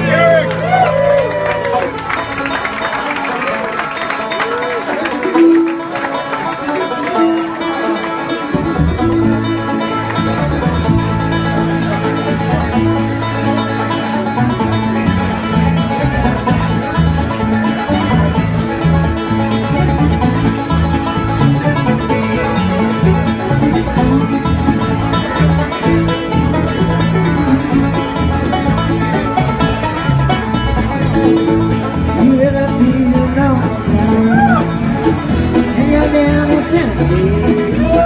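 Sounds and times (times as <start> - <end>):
bluegrass band playing: 0.0 - 38.0
low bass line: 8.4 - 38.0.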